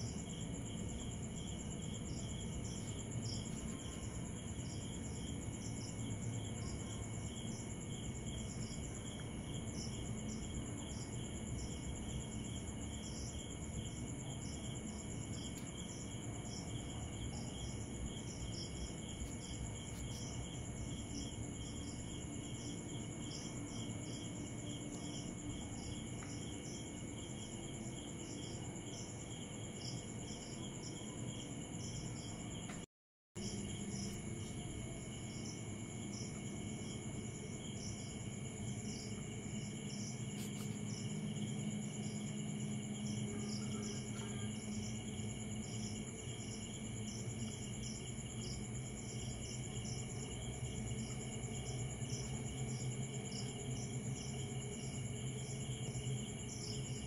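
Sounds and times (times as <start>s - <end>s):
crickets trilling: 0.0s - 57.0s
insect chirp: 0.0s - 57.0s.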